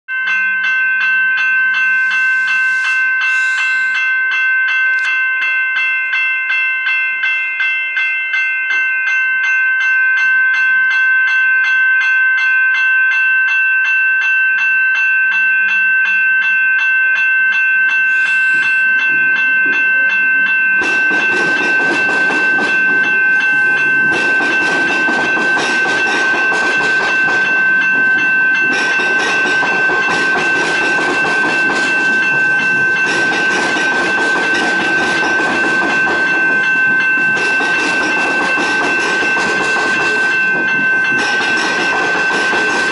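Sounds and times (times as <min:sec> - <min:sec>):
level crossing warning bells: 0:00.1 - 0:42.9
train wheels on rails: 0:17.8 - 0:42.9.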